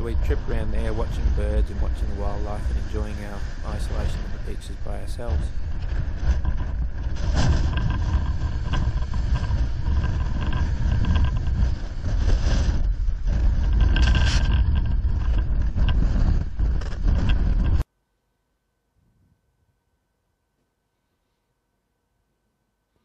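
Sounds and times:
wind buffeting microphone: 0.0 - 17.8.

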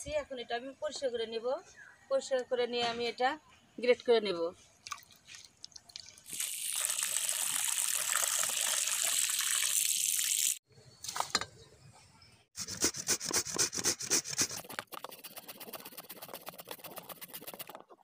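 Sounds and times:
water splashing and pouring: 4.8 - 10.6
fruit grated on metal grater: 12.7 - 17.8.

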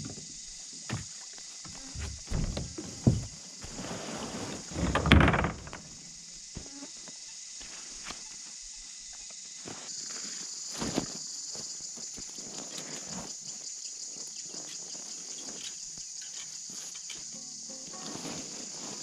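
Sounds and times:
cicadas droning: 0.0 - 19.0
rustling and steps in grass: 17.7 - 19.0.

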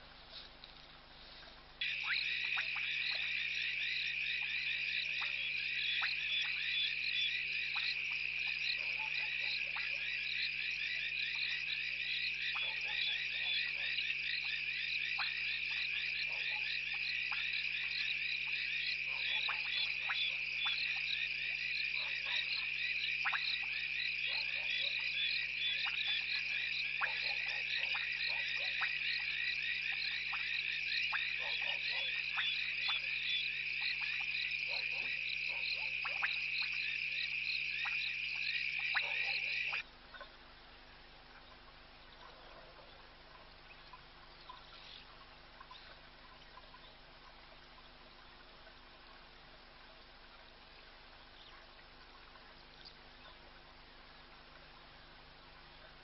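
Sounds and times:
frogs trilling: 1.8 - 40.3.

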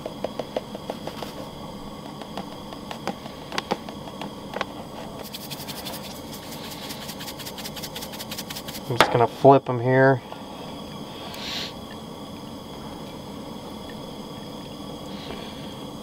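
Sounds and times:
steady low hum: 0.0 - 16.0
seasoning shaker rattling: 5.1 - 9.0
flour pouring into container: 5.2 - 8.9.

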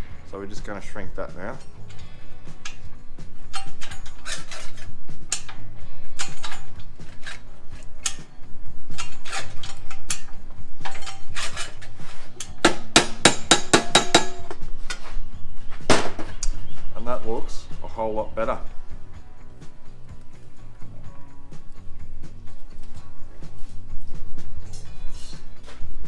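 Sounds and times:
hammer striking sheet steel: 12.6 - 14.6.

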